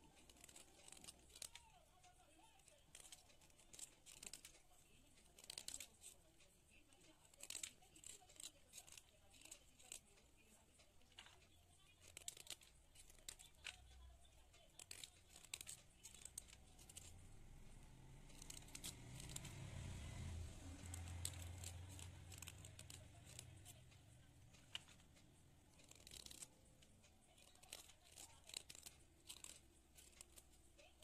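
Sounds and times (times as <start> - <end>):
knife scraping chalk: 0.0 - 1.6, 12.0 - 13.7, 14.7 - 19.7, 20.6 - 23.9, 24.6 - 31.0.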